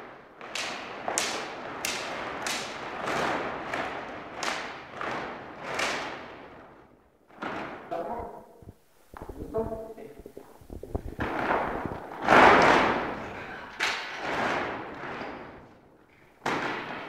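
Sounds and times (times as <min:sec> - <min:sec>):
cloth flags swishing and snapping: 0:00.0 - 0:08.0.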